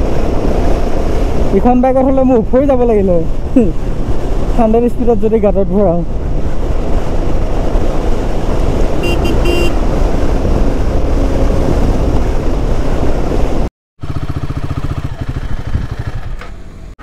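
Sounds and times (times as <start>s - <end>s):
wind rushing over microphone: 0.0s - 13.7s, 14.6s - 16.4s
vehicle horn beeping: 9.0s - 9.8s.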